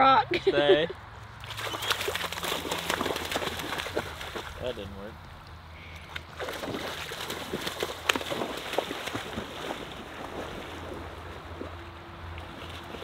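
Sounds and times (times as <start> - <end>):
dog splashing through water: 1.4 - 4.7, 6.0 - 13.0.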